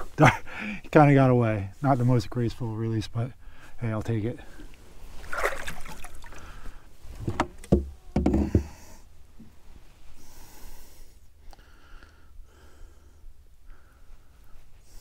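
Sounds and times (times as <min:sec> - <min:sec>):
faint short breaths: 0:06.2 - 0:07.0, 0:10.1 - 0:15.0
dull knocks inside canoe: 0:07.2 - 0:08.8.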